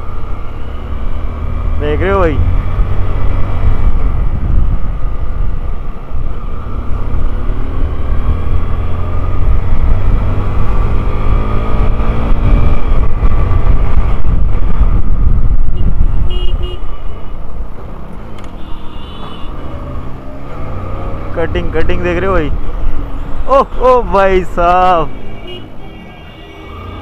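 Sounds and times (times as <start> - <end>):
wind rumble on microphone: 2.4 - 17.9
vehicle horn toots: 15.8 - 16.9, 18.6 - 19.6, 25.1 - 27.0.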